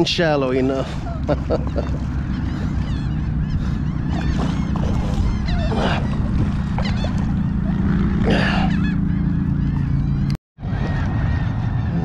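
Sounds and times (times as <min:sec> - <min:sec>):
birds calling: 0:00.0 - 0:12.0
wind on microphone: 0:00.9 - 0:09.0
fish thrashing in water: 0:01.0 - 0:07.9.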